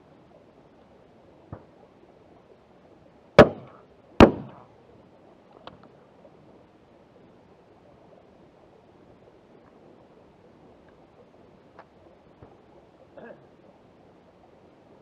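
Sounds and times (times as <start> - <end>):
shotgun shots: 3.4 - 4.6.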